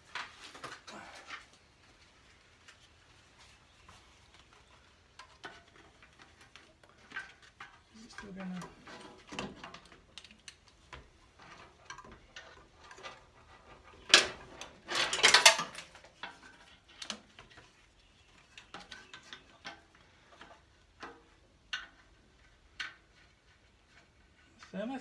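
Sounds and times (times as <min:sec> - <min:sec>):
plastic clatter: 0:05.1 - 0:23.3
plastic fan housing clicks and knocks: 0:05.2 - 0:13.2.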